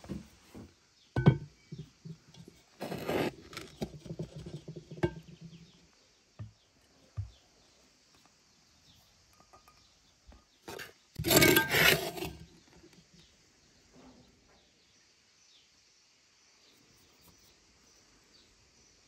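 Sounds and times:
bowl scraping flour in clay jar: 0:02.4 - 0:05.2, 0:10.7 - 0:12.6.

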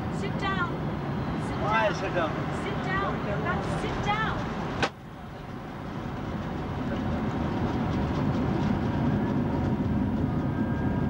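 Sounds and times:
jet engines and wheels rumbling: 0:00.0 - 0:11.0.

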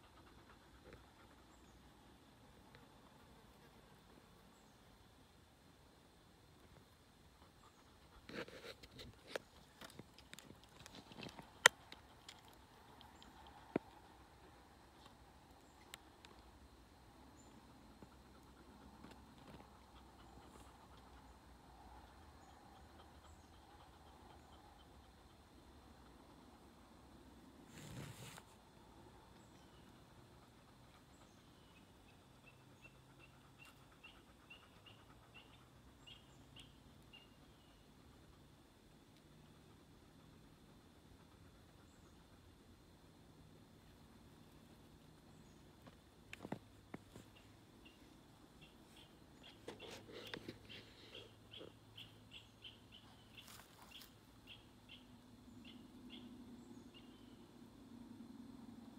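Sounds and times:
faint bird chirping: 0:00.0 - 0:58.9
small animal chirping: 0:31.4 - 0:37.6.

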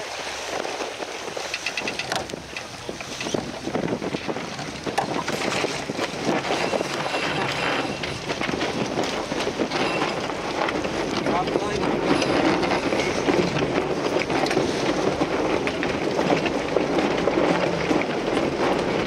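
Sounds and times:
boat and rigging rattling: 0:00.0 - 0:19.0
water rushing along a hull: 0:00.0 - 0:19.0
wind buffeting microphone: 0:00.0 - 0:19.0.

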